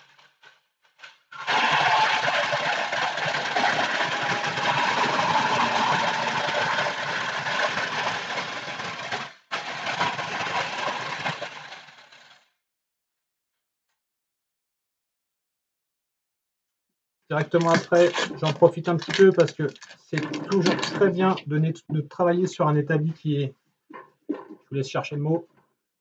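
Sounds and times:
wood router running: 0:01.4 - 0:12.3.

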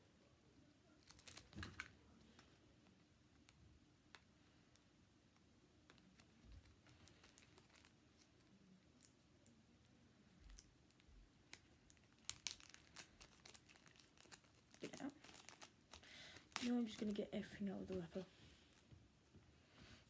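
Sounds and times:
wrapper crinkling: 0:01.0 - 0:02.0, 0:06.0 - 0:09.1, 0:10.4 - 0:18.8.

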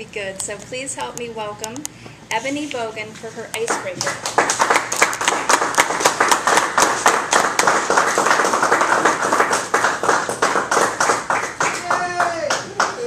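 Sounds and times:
small group clapping: 0:03.6 - 0:13.0.

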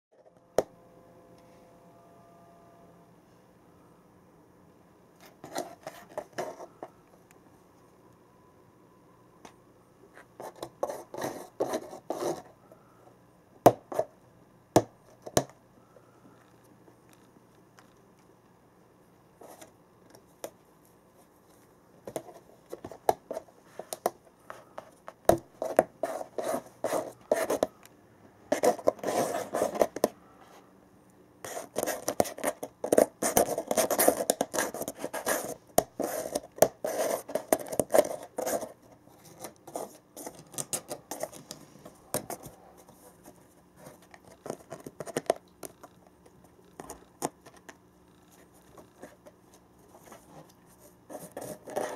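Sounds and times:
cat scratching cardboard box: 0:10.3 - 0:12.5, 0:22.1 - 0:27.7, 0:28.5 - 0:30.1, 0:31.4 - 0:45.9, 0:48.3 - 0:51.9.

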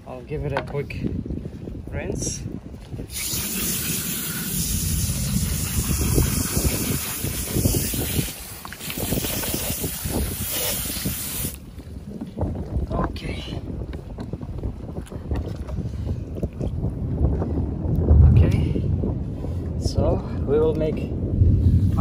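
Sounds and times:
wind buffeting microphone: 0:00.0 - 0:22.0
hose spray hissing: 0:03.1 - 0:11.6.

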